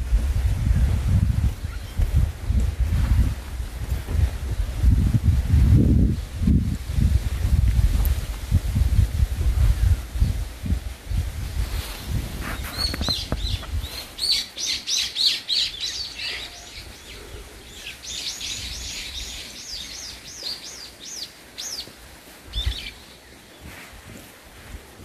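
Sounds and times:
low rumble on microphone: 0.0s - 14.1s
songbird singing high notes: 12.7s - 21.9s.

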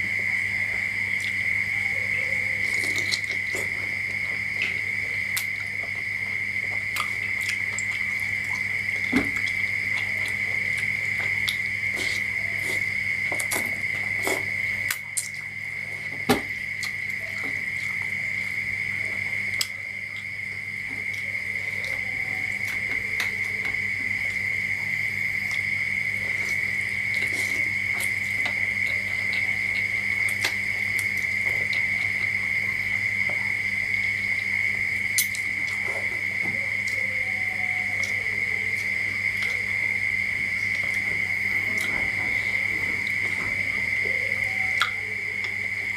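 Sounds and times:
high-pitched whine: 0.0s - 45.9s
wet eating clicks and smacks: 2.6s - 15.6s, 16.2s - 18.2s, 25.4s - 33.6s, 34.4s - 36.1s.

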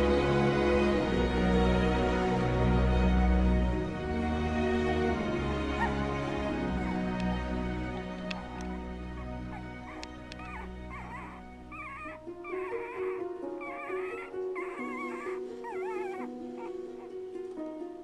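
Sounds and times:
soft background music: 0.0s - 18.0s
puppy crying: 5.7s - 6.2s, 8.3s - 17.2s.

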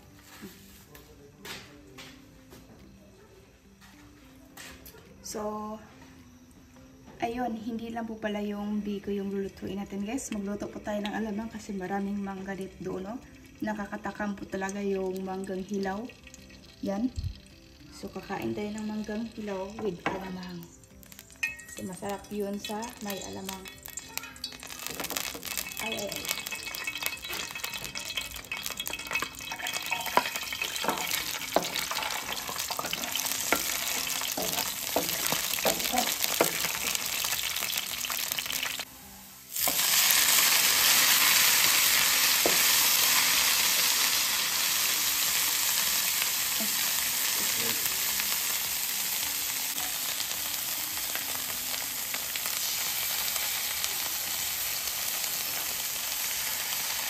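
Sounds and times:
shrimp paste sizzling: 8.8s - 57.0s
oil crackling and popping: 12.4s - 38.9s, 39.5s - 57.0s.

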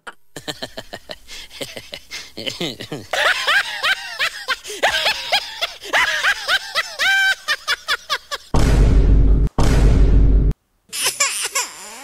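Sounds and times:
high-pitched cartoonish laughter: 2.8s - 8.5s
loud dense bass-heavy sound: 8.6s - 10.5s.

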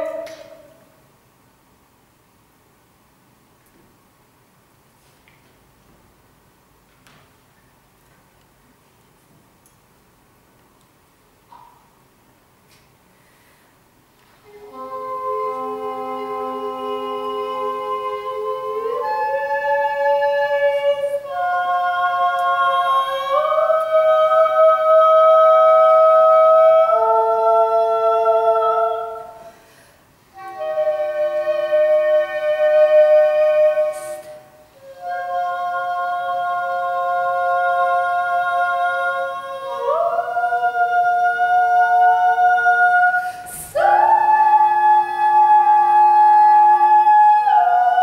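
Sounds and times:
english horn playing: 14.4s - 23.7s, 30.3s - 35.4s
soprano voice singing: 14.4s - 29.5s, 30.3s - 48.0s.

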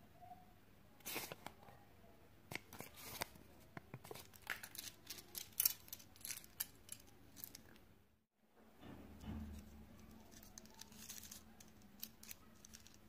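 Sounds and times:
plastic toy parts clicking: 4.4s - 7.8s, 10.0s - 13.0s
paper leaflet crinkling: 10.0s - 13.0s.

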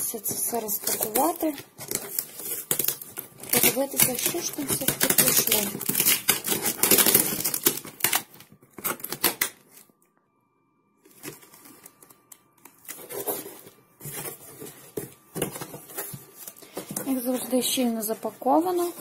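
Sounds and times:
cardboard rustling: 0.1s - 9.9s, 11.0s - 19.0s
packing tape ripping: 0.7s - 9.9s.

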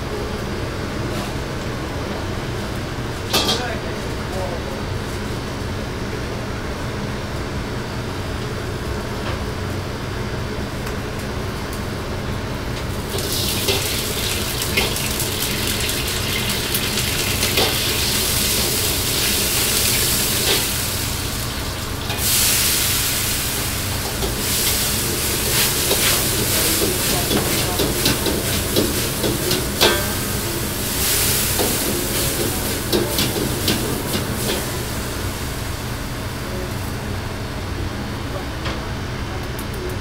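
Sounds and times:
gas burner and exhaust hood roar: 0.0s - 40.0s
loud sizzling hiss in wok: 12.8s - 37.7s.

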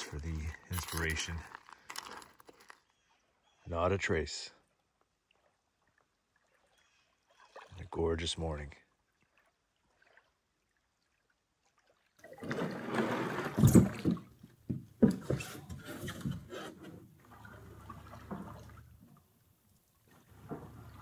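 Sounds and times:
paddle strokes splashing: 5.2s - 7.9s, 8.9s - 14.4s, 15.1s - 21.0s
canoe hull scraping on sand: 12.4s - 14.3s, 15.1s - 19.0s.

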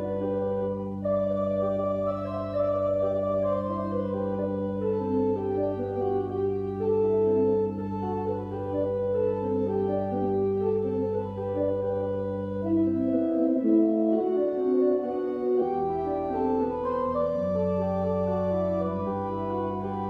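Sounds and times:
organ chords and melody: 0.0s - 20.0s.

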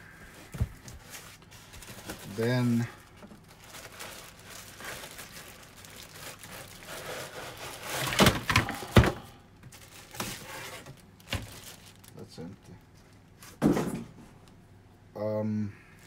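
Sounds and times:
cardboard and plastic rustling: 0.2s - 14.4s
box and plastic racks knocking: 13.6s - 14.2s.

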